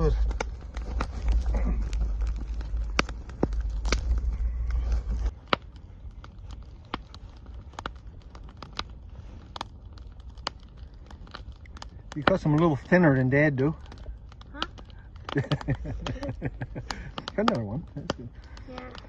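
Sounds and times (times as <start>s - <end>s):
campfire crackling and popping: 0.0s - 19.0s
heavy low rumble: 0.0s - 19.0s.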